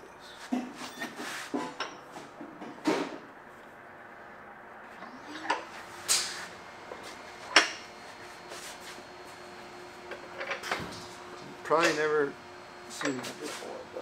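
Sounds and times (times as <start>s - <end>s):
metallic clanks from bench vise: 13.0s - 13.4s.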